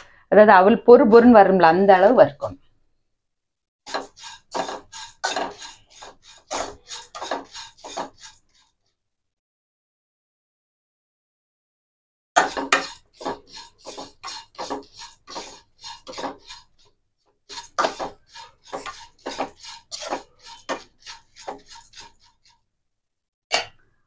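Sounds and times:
spatula scraping and stirring in pan: 3.8 - 8.8, 12.4 - 22.7.

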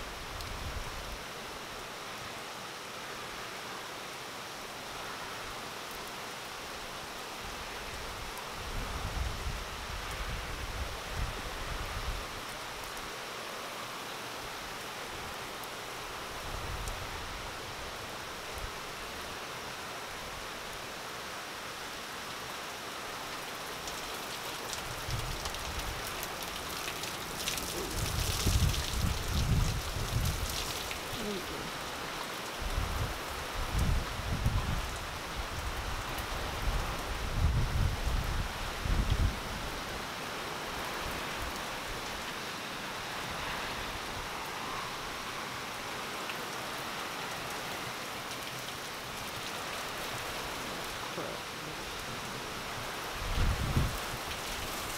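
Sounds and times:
heavy rain pouring: 0.0 - 54.9
wind buffeting microphone: 27.6 - 30.7, 32.6 - 39.8, 52.8 - 54.8.

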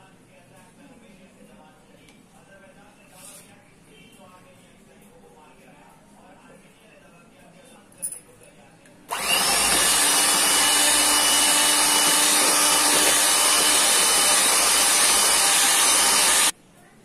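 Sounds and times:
electric hand mixer running: 9.1 - 16.5.

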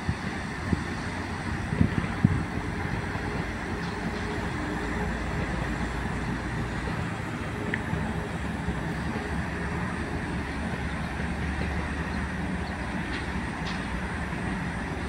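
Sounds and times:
heavy vehicle engines rumbling: 0.0 - 15.0.

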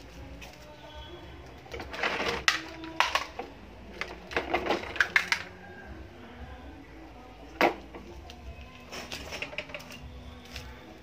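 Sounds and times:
plastic toys clattering on stone: 1.7 - 5.5, 8.8 - 10.8.

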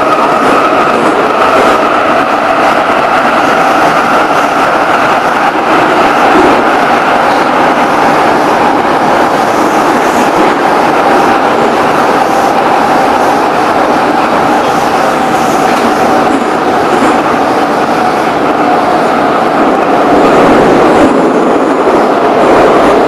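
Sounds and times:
train running noise: 0.0 - 23.0
train whine: 0.0 - 23.0.

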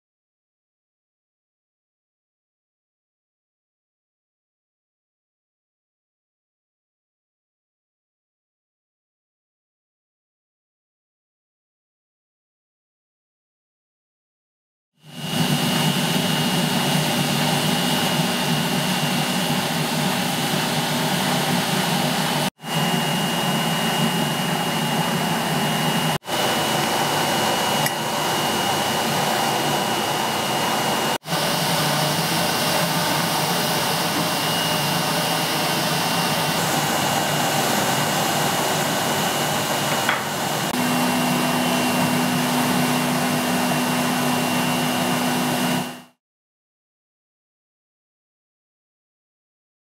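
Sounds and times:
furnace burner roaring: 15.0 - 46.2.

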